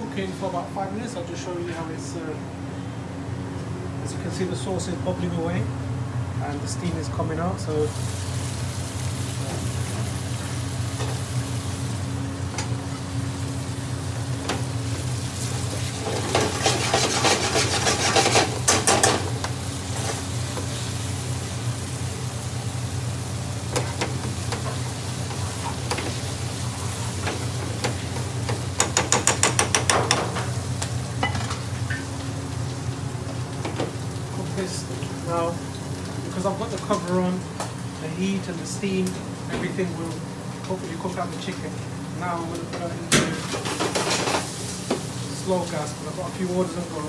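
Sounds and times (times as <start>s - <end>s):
steady low hum: 0.0s - 47.0s
sauce sizzling: 7.8s - 29.1s, 43.6s - 46.4s
metal spoon scraping frying pan: 16.3s - 19.2s.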